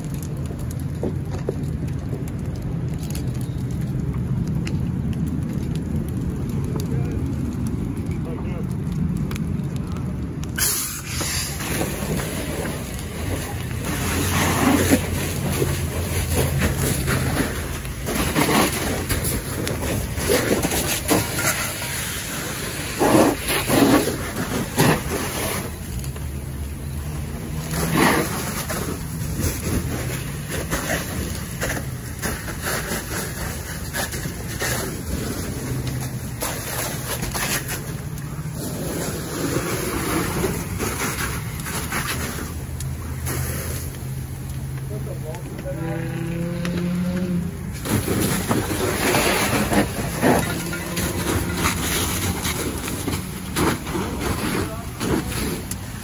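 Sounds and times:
water spray hissing on fire: 0.0 - 56.0
low engine drone: 33.1 - 55.6.

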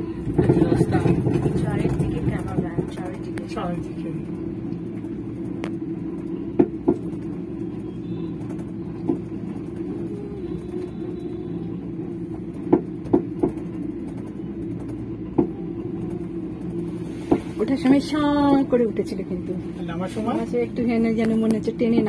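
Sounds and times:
cable car humming: 0.0 - 22.0
sharp clicks and knocks: 12.5 - 17.5.

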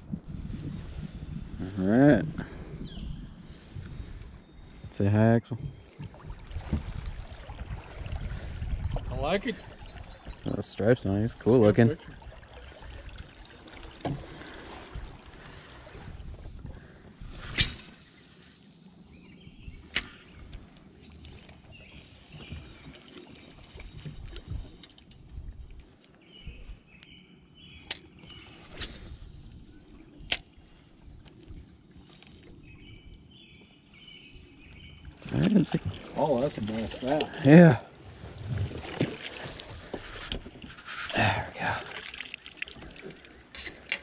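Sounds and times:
water and wind wash: 0.0 - 44.0.

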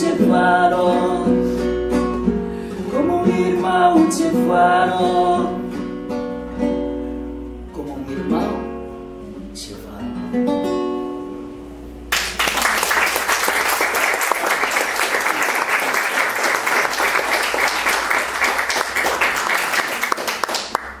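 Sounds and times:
classical guitar chord: 0.0 - 12.4
audience applause: 12.1 - 21.0.

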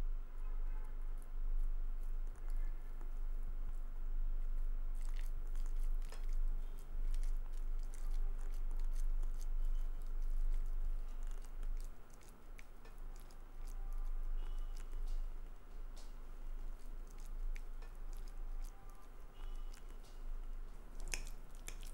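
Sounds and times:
steady low hum: 0.0 - 21.9
wet chewing: 4.4 - 21.9.

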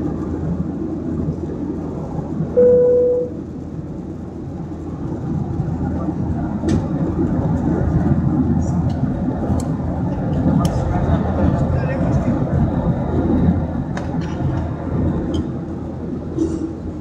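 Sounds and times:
airliner cabin rumble: 0.0 - 17.0
beep tone: 2.6 - 3.4.

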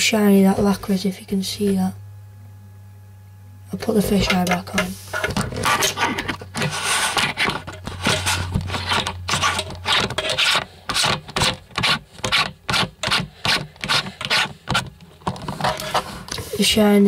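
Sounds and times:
lens scraping against camera body: 5.0 - 16.1.

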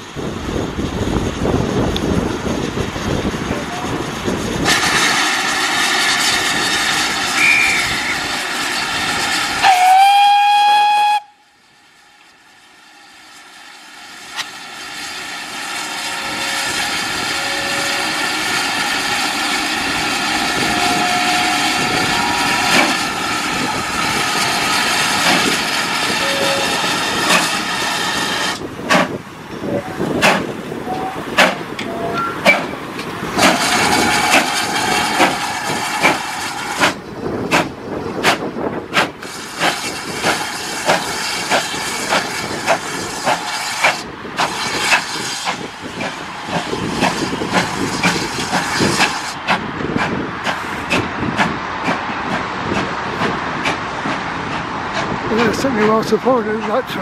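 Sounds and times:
steam hissing: 2.9 - 55.8
steam locomotive whistle: 7.3 - 8.4, 9.6 - 11.5, 16.1 - 18.4, 20.5 - 22.8, 26.2 - 27.0
locomotive exhaust beats: 16.1 - 57.0.

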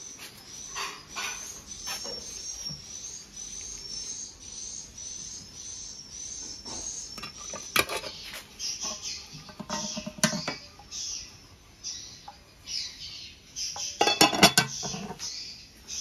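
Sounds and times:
metal pan lid clattering: 8.9 - 10.6, 14.0 - 15.2.

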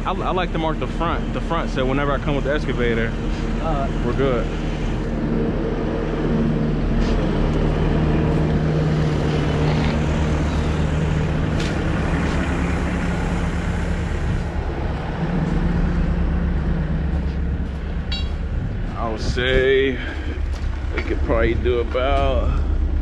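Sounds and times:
construction machine engine idling: 0.0 - 23.0.

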